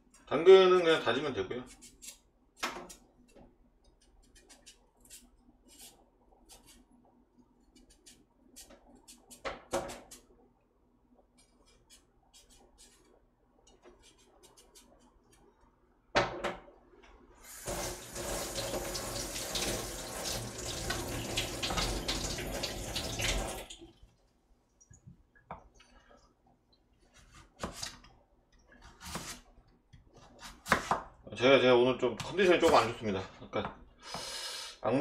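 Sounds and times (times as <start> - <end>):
knife on cutting board: 28.9 - 29.4.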